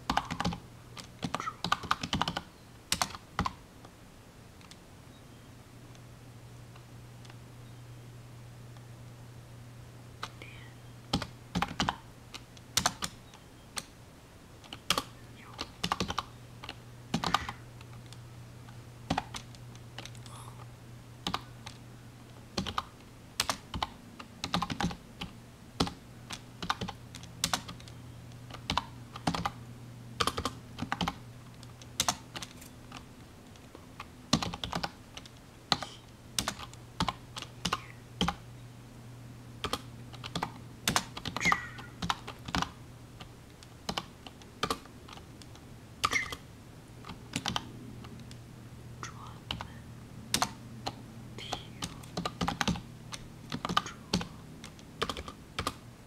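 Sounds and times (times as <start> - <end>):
keyboard typing: 0.0 - 3.6, 10.2 - 13.2, 14.6 - 18.2, 19.1 - 21.8, 22.6 - 29.6, 30.2 - 38.4, 39.6 - 46.4, 47.0 - 48.4, 49.1 - 55.8
steady low hum: 0.0 - 56.0.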